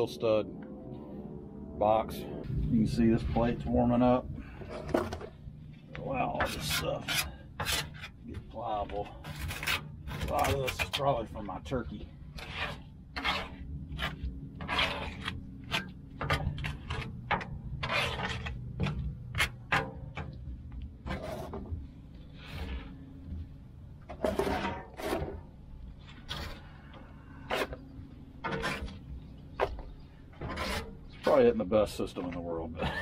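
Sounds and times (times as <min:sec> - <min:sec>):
scraper scraping grease on steel: 0:06.3 - 0:08.2, 0:09.2 - 0:11.2, 0:12.4 - 0:19.9, 0:28.4 - 0:29.0, 0:30.4 - 0:31.4.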